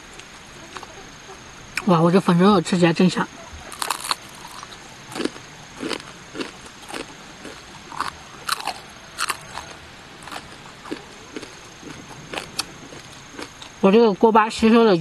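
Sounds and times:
crunching bites of crispy food: 0:03.7 - 0:13.8.

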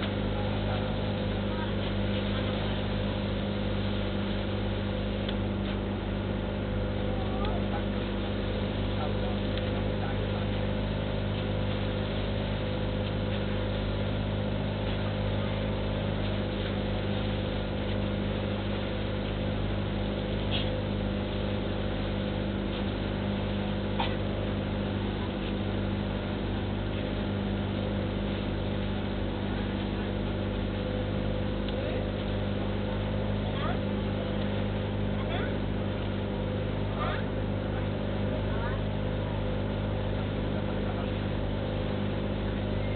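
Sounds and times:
boat engine droning: 0:00.0 - 0:42.9.

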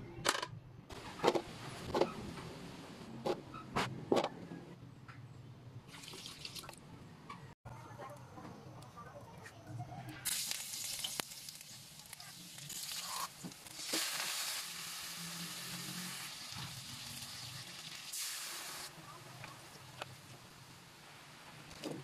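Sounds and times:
food sizzling in oil: 0:10.2 - 0:20.0.

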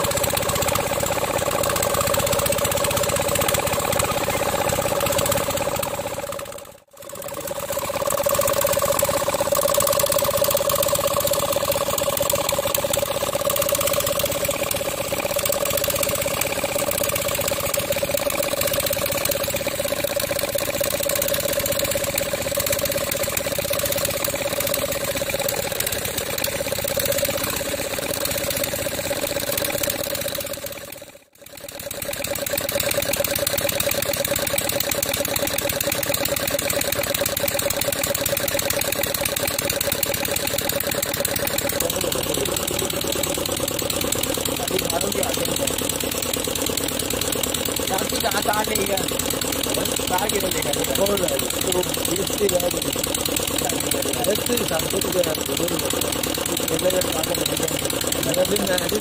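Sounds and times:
diesel engine driving water pump: 0:00.0 - 0:59.0.

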